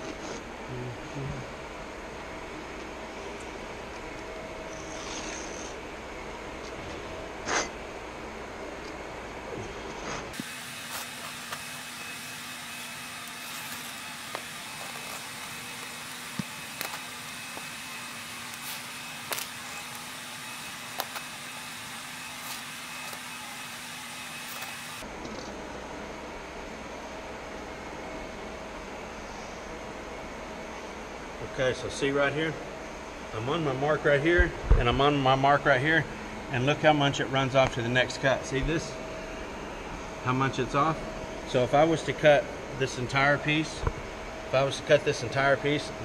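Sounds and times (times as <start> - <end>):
knife and straight edge scraping: 4.7 - 5.8, 7.4 - 7.8.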